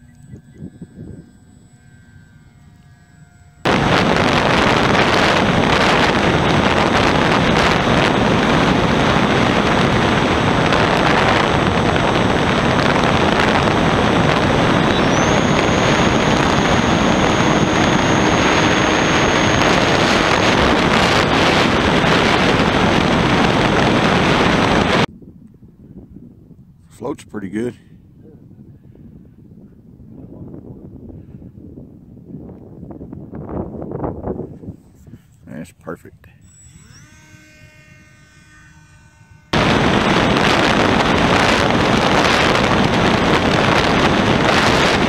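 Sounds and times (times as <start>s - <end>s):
faint high whine: 0.0s - 25.8s, 26.9s - 45.0s
wind and propeller noise: 0.0s - 45.0s.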